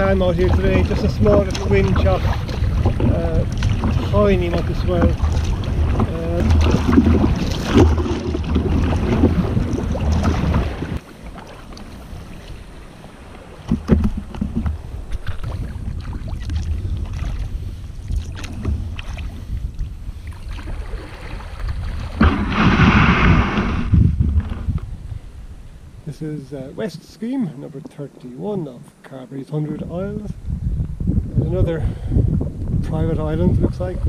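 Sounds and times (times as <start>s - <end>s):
paddle splashing through water: 0.0s - 24.7s
wind buffeting microphone: 0.0s - 26.8s, 29.6s - 34.0s.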